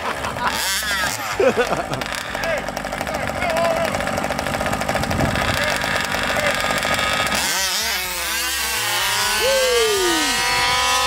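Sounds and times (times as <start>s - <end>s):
rc car engines buzzing: 0.0s - 11.0s.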